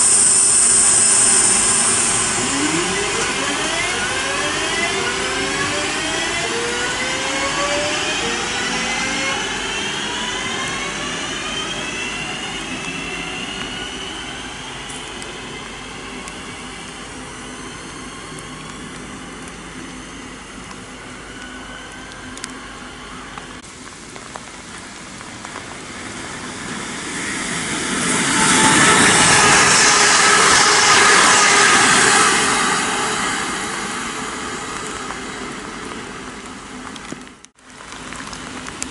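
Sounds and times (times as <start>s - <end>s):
rain hiss: 0.0s - 5.5s
electric train motors whining: 0.0s - 23.6s, 25.6s - 36.8s.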